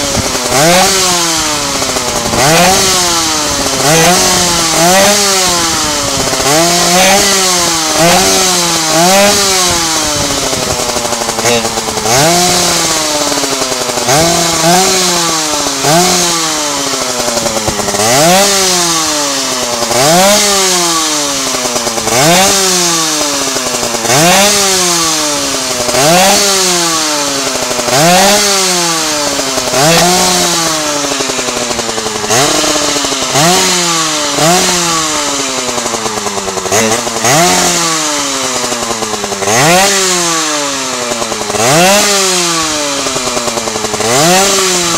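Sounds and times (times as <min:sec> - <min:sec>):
two-stroke engine revving: 0:00.0 - 0:44.9.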